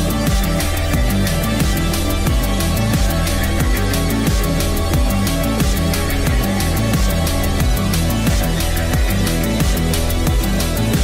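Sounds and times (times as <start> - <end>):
electronic industrial music: 0.0 - 11.0.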